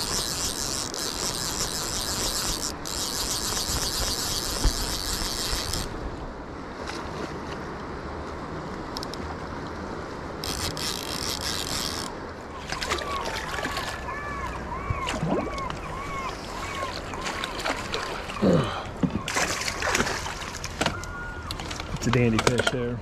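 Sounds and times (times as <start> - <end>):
river current rushing: 10.0 - 22.4.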